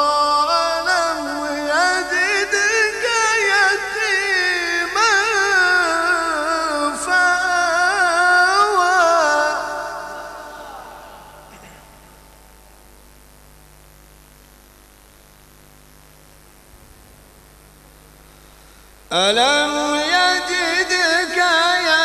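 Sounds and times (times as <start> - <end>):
man reciting melodically: 0.0 - 12.2, 19.1 - 22.0
steady electrical hum: 0.0 - 22.0.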